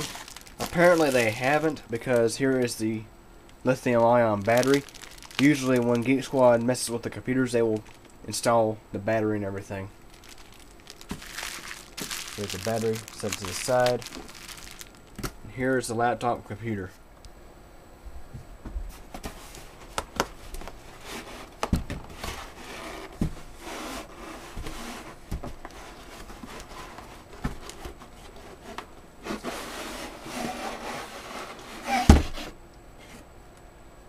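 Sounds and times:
cardboard rubbing and rustling: 0:00.0 - 0:02.7, 0:03.8 - 0:07.0, 0:10.1 - 0:14.9, 0:20.6 - 0:32.6.

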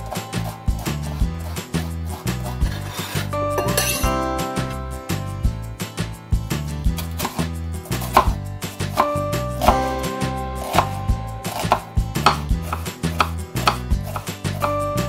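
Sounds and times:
background music: 0:00.0 - 0:15.0
knife chopping on wooden board: 0:07.0 - 0:10.0, 0:10.6 - 0:14.8.

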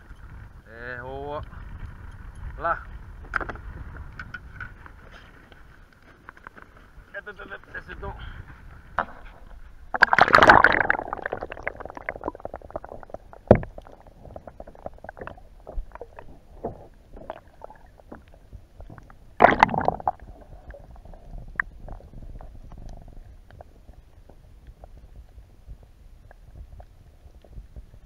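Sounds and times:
muffled underwater rumble: 0:08.2 - 0:28.0
rush of water: 0:09.9 - 0:18.5, 0:19.3 - 0:22.6.

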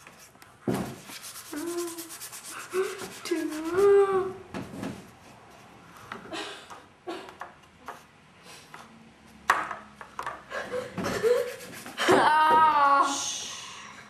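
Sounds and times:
drawing tool scratching paper: 0:00.9 - 0:04.0, 0:11.3 - 0:12.0.

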